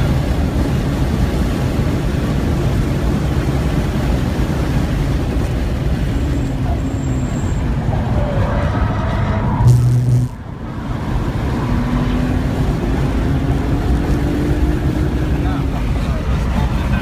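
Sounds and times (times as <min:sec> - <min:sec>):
car engine running hard: 0:00.0 - 0:17.0
car braking hard: 0:06.0 - 0:12.6.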